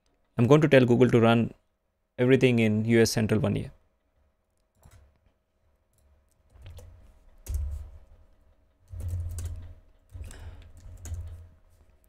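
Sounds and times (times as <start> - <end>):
computer keyboard typing: 4.7 - 5.2, 5.9 - 12.0.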